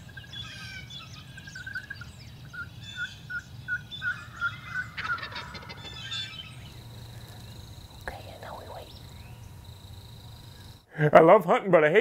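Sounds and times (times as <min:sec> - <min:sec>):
songbirds chirping: 0:00.0 - 0:10.9
wild turkey yelps: 0:00.2 - 0:06.7
turkey gobble: 0:02.6 - 0:06.6.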